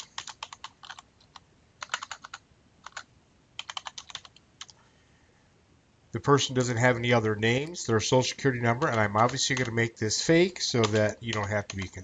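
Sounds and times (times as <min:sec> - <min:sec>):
computer keyboard typing: 0:00.0 - 0:04.8, 0:08.7 - 0:09.9, 0:10.8 - 0:12.0.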